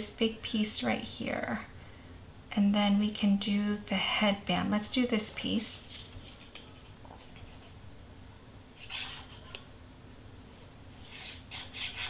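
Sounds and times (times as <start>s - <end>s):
low steady hum: 0.0s - 12.0s
papery brush: 5.7s - 7.8s, 8.8s - 9.6s, 10.6s - 12.0s.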